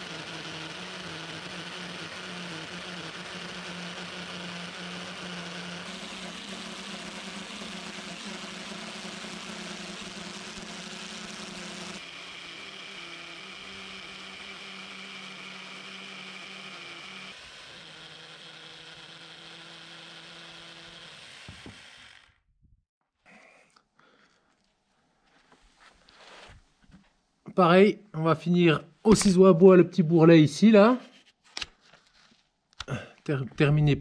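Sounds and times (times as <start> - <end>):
circular saw cutting wood: 0.0 - 22.5.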